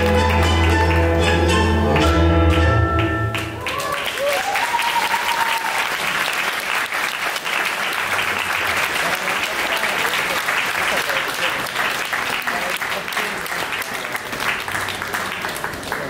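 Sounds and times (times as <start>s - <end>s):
tango music: 0.0s - 3.7s
audience applause: 3.3s - 16.0s.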